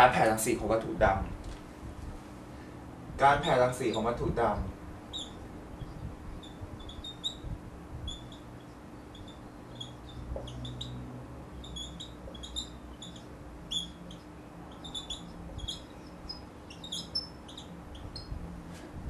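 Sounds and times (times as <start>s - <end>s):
faint steady hum: 0.0s - 19.0s
whiteboard marker squeaking: 3.3s - 4.2s, 5.1s - 18.3s.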